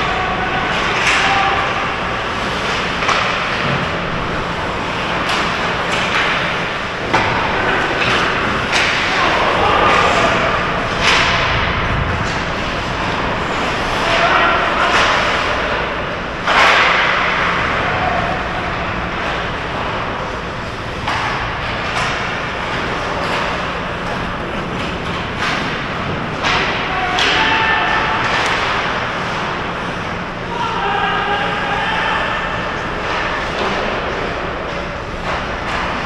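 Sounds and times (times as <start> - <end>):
stick and puck hitting boards: 0.2 - 4.0, 4.9 - 15.6, 16.4 - 17.6, 21.0 - 29.5.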